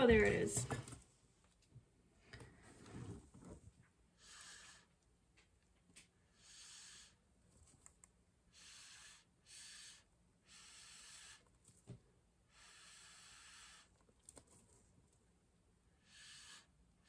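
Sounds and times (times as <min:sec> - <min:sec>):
breath puffs through a straw: 0:04.2 - 0:05.0, 0:06.3 - 0:07.2, 0:08.5 - 0:11.5, 0:12.5 - 0:14.0, 0:16.0 - 0:16.8.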